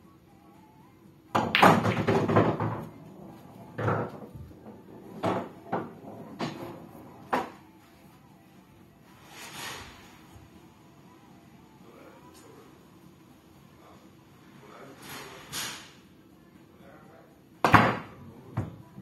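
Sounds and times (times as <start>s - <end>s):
pool balls clacking: 1.3s - 7.6s
cue striking cue ball: 1.4s - 7.6s.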